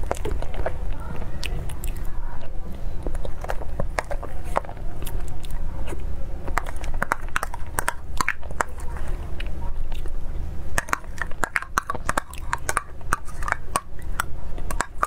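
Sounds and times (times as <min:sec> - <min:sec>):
wet chewing: 0:00.0 - 0:15.0.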